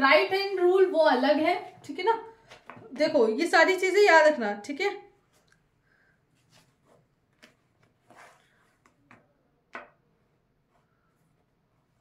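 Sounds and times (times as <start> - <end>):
faint clicks and taps: 8.8 - 10.0.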